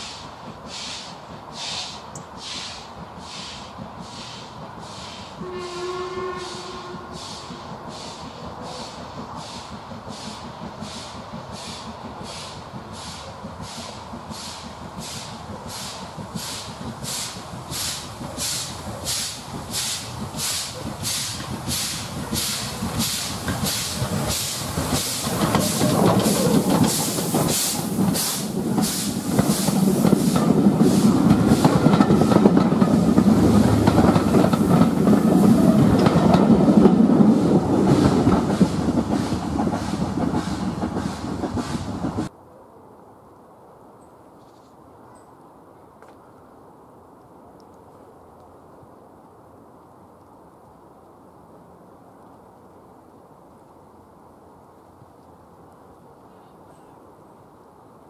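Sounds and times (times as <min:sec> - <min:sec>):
steam hiss: 0:00.0 - 0:42.3
steam locomotive exhaust chuffing: 0:00.0 - 0:42.3
rumble of train wheels: 0:00.0 - 0:58.0.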